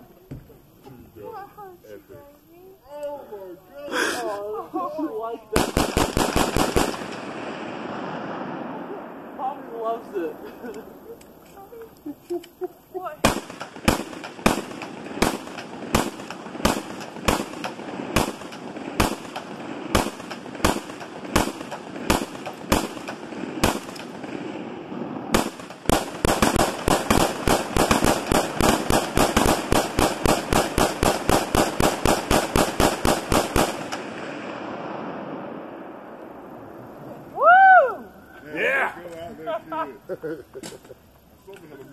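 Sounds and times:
rapid gunfire: 5.6 - 8.2, 13.2 - 24.6, 25.3 - 34.4
gunshots: 5.6 - 10.3, 13.2 - 35.9.

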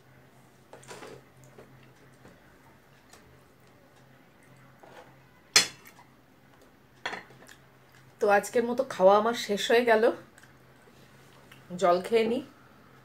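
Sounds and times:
dishware clinking: 5.6 - 5.9.

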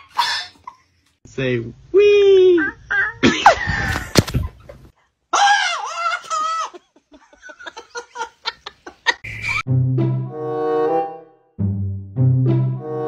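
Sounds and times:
person giggling: 3.1 - 4.8
music: 9.6 - 13.0.

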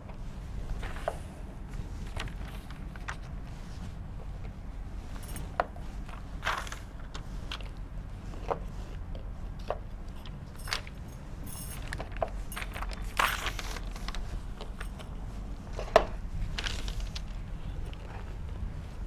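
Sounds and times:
steady low hum: 0.0 - 19.0
paper rustle: 0.7 - 3.7, 11.8 - 14.9, 16.4 - 18.5.

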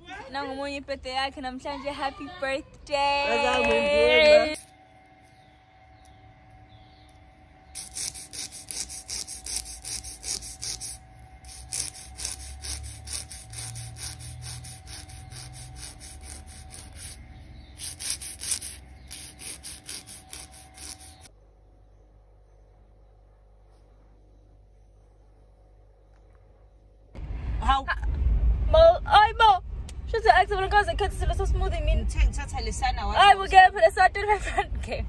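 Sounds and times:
nail file rasping on fingernail: 7.8 - 21.3.

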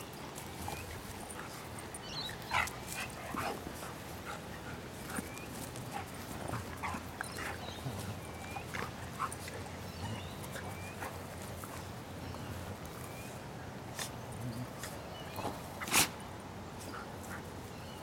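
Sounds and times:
dogs grunting: 0.6 - 11.9.

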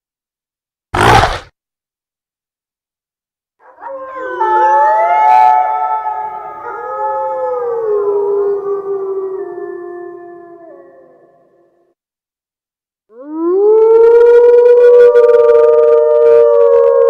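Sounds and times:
layered wolf-like howl: 3.6 - 11.6, 13.1 - 17.0.

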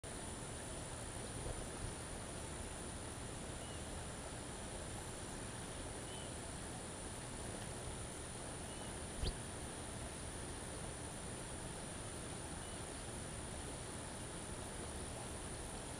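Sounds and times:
outdoor hiss: 0.0 - 15.9
faint bird chirps: 3.5 - 3.9, 6.0 - 6.4, 8.6 - 9.4, 12.6 - 12.9.

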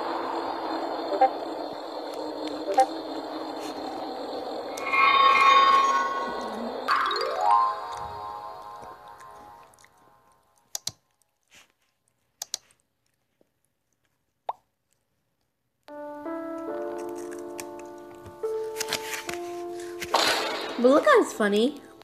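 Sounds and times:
synth music tune: 4.1 - 10.3
sparkling chime: 4.7 - 9.8
soft clicks: 12.4 - 12.8.

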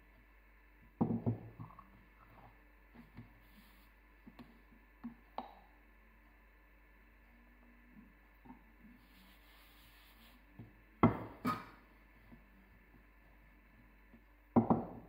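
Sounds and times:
rolling pin knocking on surface: 1.0 - 1.5, 10.6 - 11.6, 14.6 - 15.0.

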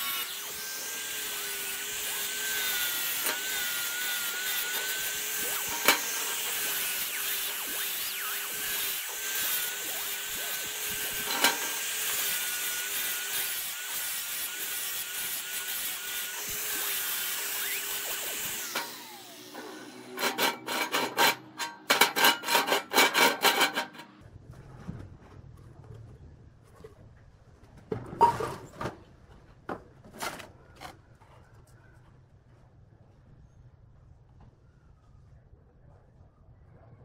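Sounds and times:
angle grinder grinding steel: 0.0 - 24.2
grinder disc spinning down: 1.4 - 20.8.

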